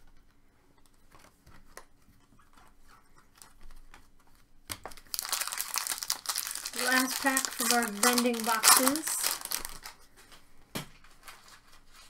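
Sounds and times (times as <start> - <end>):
foil pack crinkling: 4.8 - 10.4.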